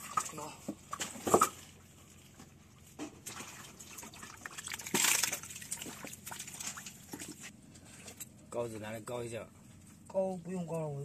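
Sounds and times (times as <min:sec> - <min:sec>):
water splashing in rock pool: 0:03.2 - 0:07.5.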